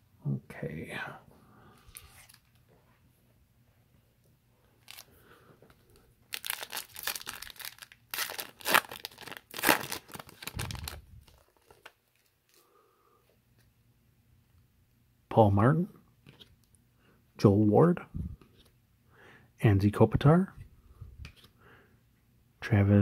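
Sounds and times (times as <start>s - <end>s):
foil wrapper tearing and crinkling: 4.8s - 5.1s, 6.3s - 12.4s.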